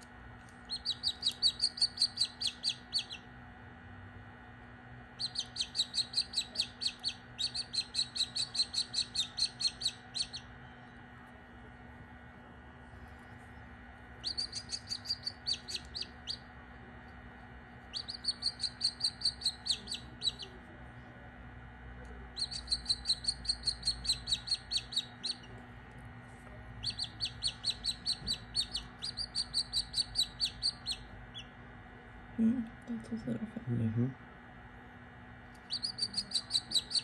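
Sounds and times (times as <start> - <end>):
faint steady hum: 0.0 - 37.0
chick peeping: 0.6 - 3.3, 5.2 - 10.5, 14.2 - 16.5, 17.9 - 20.6, 22.4 - 25.6, 26.8 - 31.5, 35.6 - 37.0.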